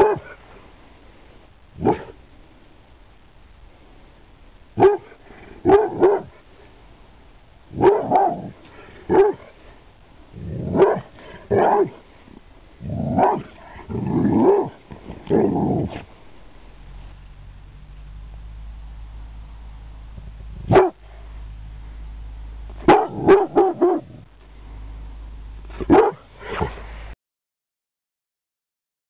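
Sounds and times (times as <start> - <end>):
dog barking deeply: 0.0 - 0.4, 1.8 - 2.2, 4.8 - 6.4, 7.7 - 9.5, 10.4 - 12.0, 12.8 - 16.1, 20.6 - 21.0, 22.8 - 24.3, 25.7 - 26.8.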